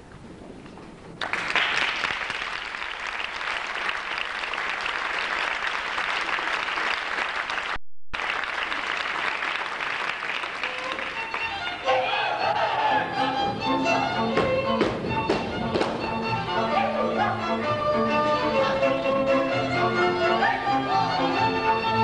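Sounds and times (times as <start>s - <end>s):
audience applauding: 1.2s - 11.8s.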